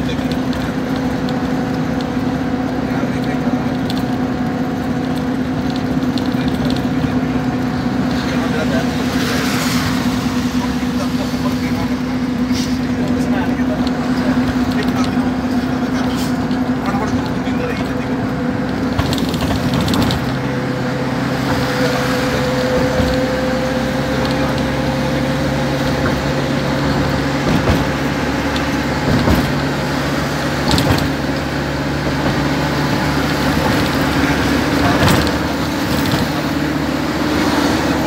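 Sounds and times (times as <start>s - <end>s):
road noise: 0.0s - 38.0s
vehicle engine hum: 0.0s - 38.0s
knocks from road bumps: 18.7s - 20.5s, 22.6s - 24.7s, 25.8s - 30.0s, 30.6s - 36.6s.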